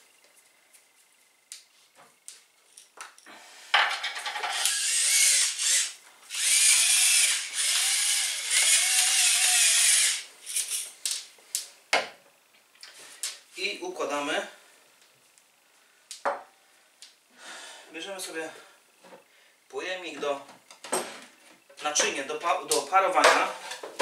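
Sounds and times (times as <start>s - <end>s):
electric spice mill grinding: 4.3s - 10.8s.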